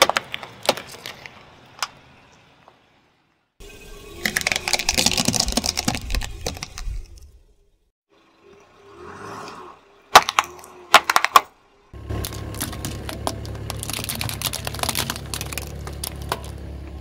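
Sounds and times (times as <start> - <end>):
sharp plastic cracks: 0.0 - 2.0, 4.2 - 6.9, 10.2 - 11.5, 12.1 - 16.6
rolling car rumble: 3.6 - 17.0
small crackles and snaps: 12.2 - 16.6.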